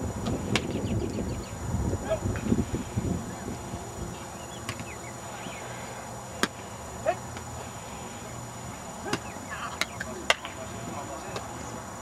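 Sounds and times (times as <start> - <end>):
low rumble and hiss: 0.0 - 12.0.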